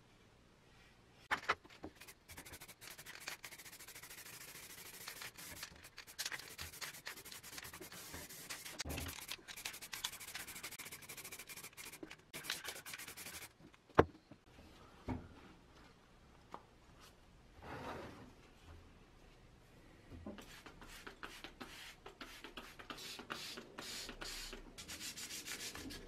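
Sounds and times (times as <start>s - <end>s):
aerosol can spraying hiss: 20.5s - 25.8s.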